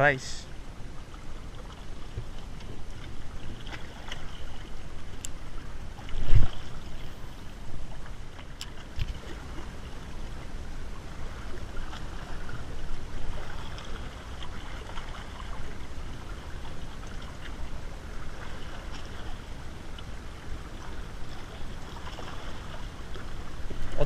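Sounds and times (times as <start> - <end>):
sea water lapping on rocks: 1.6 - 24.0.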